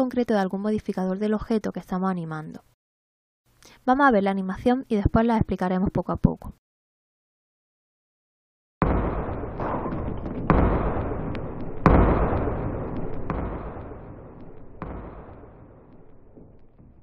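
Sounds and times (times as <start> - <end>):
ball rolling rumble: 8.8 - 17.0
ball thudding down wooden steps: 8.8 - 17.0.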